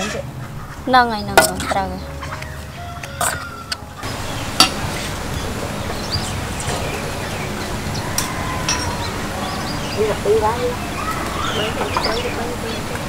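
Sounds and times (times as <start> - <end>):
faint bird chirps: 5.3 - 13.0.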